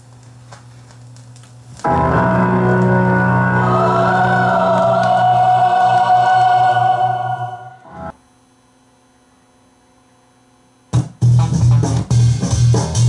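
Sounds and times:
music from vinyl record: 0:01.8 - 0:08.1, 0:11.0 - 0:13.0.

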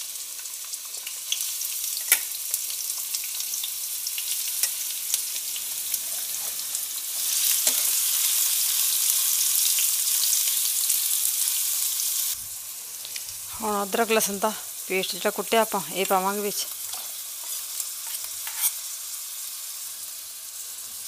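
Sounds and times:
onions sizzling in hot oil: 0:00.0 - 0:21.0
ladle scraping pan: 0:16.9 - 0:18.8.

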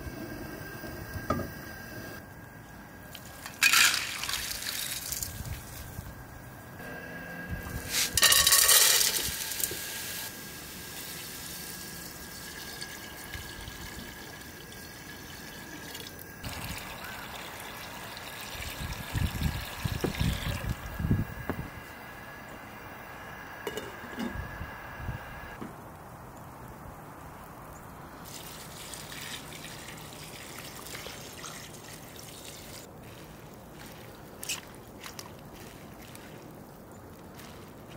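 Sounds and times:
beans clattering into pot: 0:03.3 - 0:05.2, 0:07.9 - 0:09.7
water pouring into pot: 0:03.6 - 0:05.3, 0:08.2 - 0:20.9.

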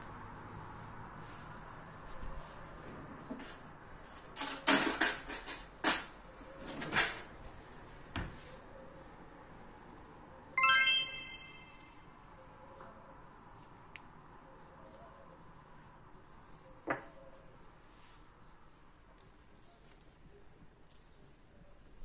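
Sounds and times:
electronic chime: 0:10.6 - 0:12.0.

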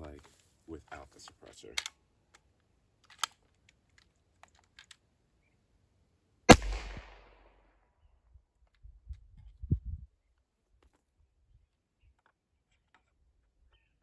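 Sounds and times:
air rifle shot: 0:06.5 - 0:07.5.

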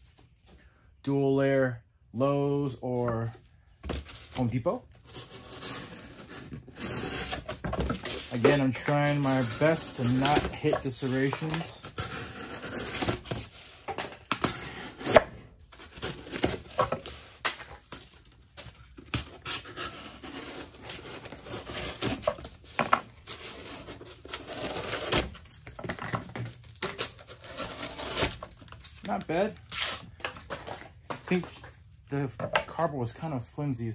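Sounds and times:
knife slicing cardboard: 0:05.0 - 0:25.5, 0:26.8 - 0:28.5.

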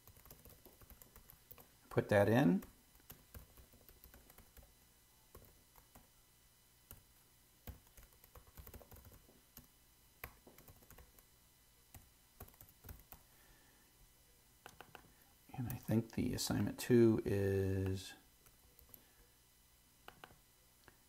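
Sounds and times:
typing on computer keyboard: 0:00.0 - 0:01.7, 0:02.6 - 0:04.7, 0:05.3 - 0:06.1, 0:07.7 - 0:11.2, 0:11.9 - 0:13.2.

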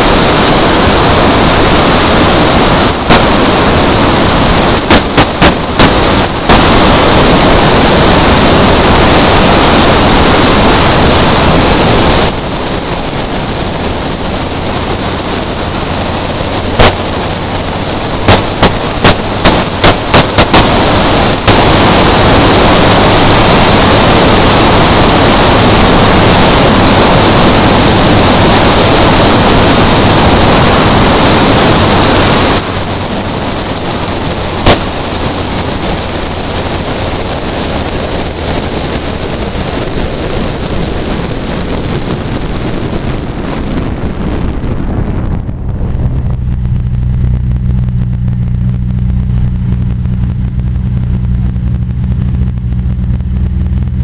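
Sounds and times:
car engine roaring: 0:00.0 - 0:54.0
wind noise on microphone: 0:00.0 - 0:54.0
sharp exhaust pops: 0:02.8 - 0:07.1, 0:14.6 - 0:22.3, 0:34.4 - 0:39.4, 0:45.0 - 0:54.0.

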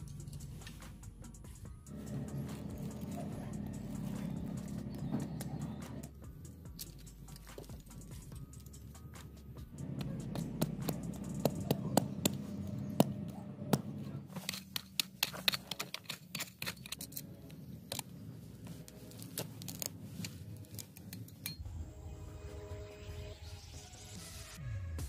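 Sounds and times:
metal folding shovel clicking: 0:14.3 - 0:18.2, 0:18.8 - 0:21.6.

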